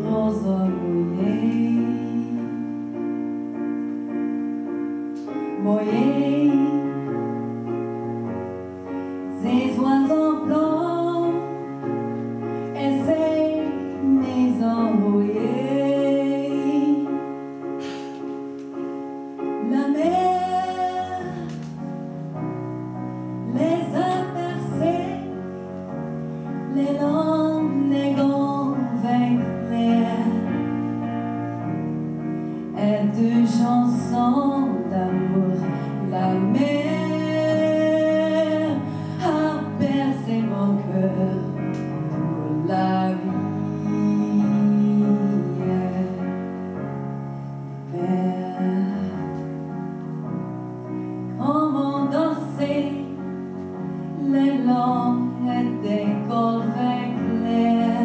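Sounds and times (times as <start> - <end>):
woman singing into a microphone: 0.0 - 2.9, 5.3 - 7.8, 9.3 - 17.5, 19.4 - 21.9, 23.4 - 25.5, 26.7 - 31.1, 32.6 - 46.5, 47.8 - 49.6, 51.3 - 58.0
piano chords: 0.0 - 58.0.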